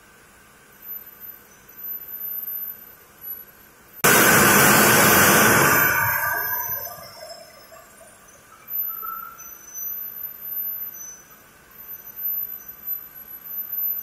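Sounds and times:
faint steady background noise: 0:00.0 - 0:04.1, 0:05.9 - 0:14.0
loud burst of hissing: 0:04.0 - 0:07.8.

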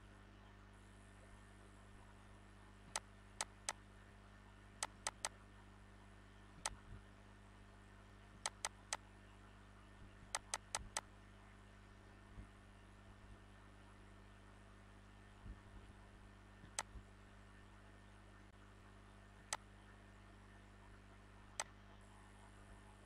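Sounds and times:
low electrical hum: 0:00.0 - 0:23.0
computer mouse clicking: 0:04.8 - 0:05.3, 0:08.4 - 0:09.0, 0:10.3 - 0:11.0, 0:16.7 - 0:16.9.

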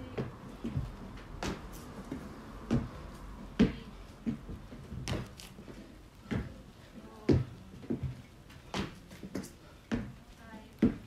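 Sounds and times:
feet landing on wooden box: 0:03.6 - 0:05.4, 0:07.3 - 0:10.1.

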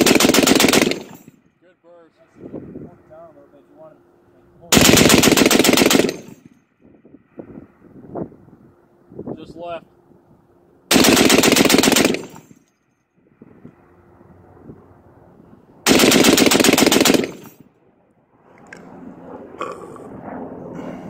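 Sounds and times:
heavy machine gun bursts: 0:00.0 - 0:01.3, 0:04.7 - 0:06.5, 0:10.9 - 0:12.6, 0:15.9 - 0:17.6.

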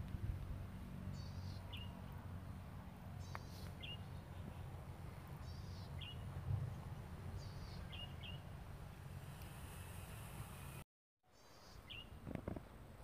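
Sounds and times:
wind rumbling on microphone: 0:00.0 - 0:00.8, 0:04.4 - 0:07.7, 0:12.0 - 0:13.0
bird chirps: 0:03.2 - 0:04.6, 0:05.4 - 0:06.2, 0:07.3 - 0:08.4.

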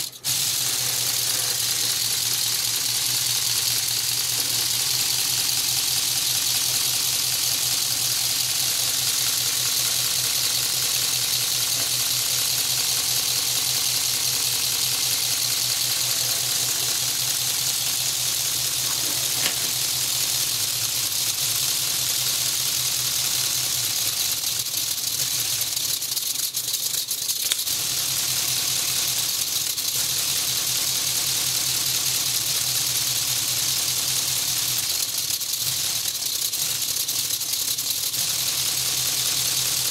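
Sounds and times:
plastic pistons rattling: 0:00.0 - 0:39.9
hiss of exhausting air: 0:00.1 - 0:22.3.

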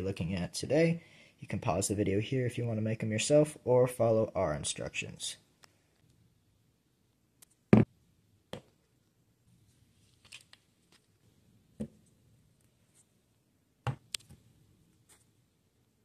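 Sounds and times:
plastic crinkle: 0:10.0 - 0:11.2.

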